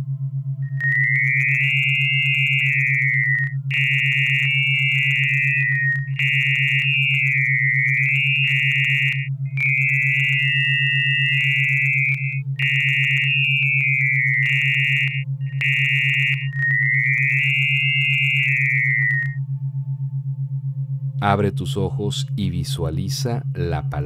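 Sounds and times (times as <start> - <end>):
pulsing low tone: 0.0 - 24.0
high electronic tone shifting pitch: 0.6 - 19.5.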